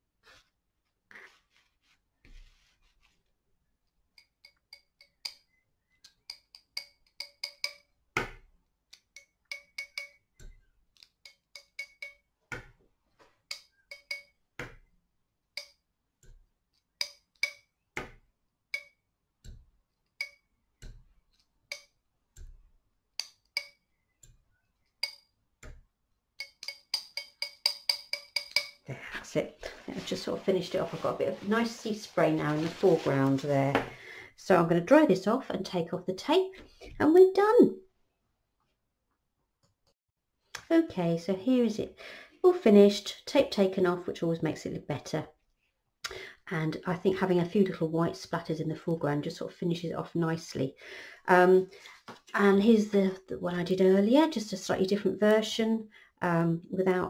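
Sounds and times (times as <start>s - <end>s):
metal palette knife tapping: 4.2s - 7.9s, 8.9s - 12.3s, 13.5s - 14.7s, 15.6s - 16.4s, 17.0s - 17.7s, 18.7s - 19.6s, 20.2s - 22.6s, 23.2s - 24.4s, 25.0s - 25.8s, 26.4s - 28.8s.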